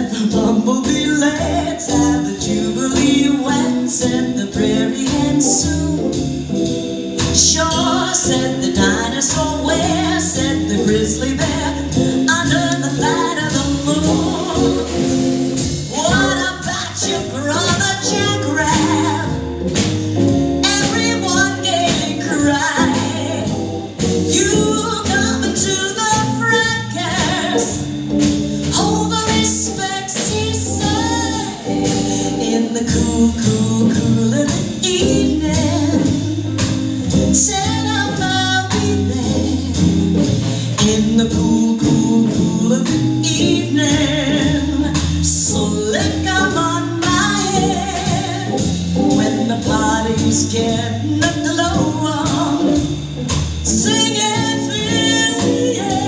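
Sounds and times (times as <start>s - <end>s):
drum kit beat: 0.0s - 56.0s
electric guitar: 0.0s - 56.0s
woman singing into microphone: 0.0s - 56.0s.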